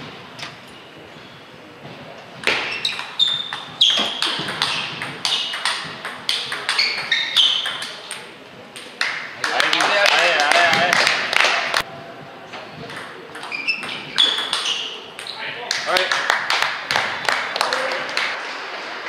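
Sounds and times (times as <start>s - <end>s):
ping pong ball hitting rackets: 2.4s - 9.8s, 12.8s - 15.4s
ping pong ball bouncing on table: 2.5s - 9.2s, 12.9s - 15.3s.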